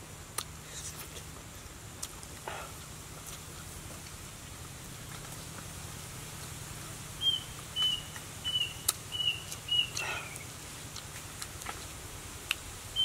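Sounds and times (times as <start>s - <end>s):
bird whistling notes: 7.2s - 10.5s.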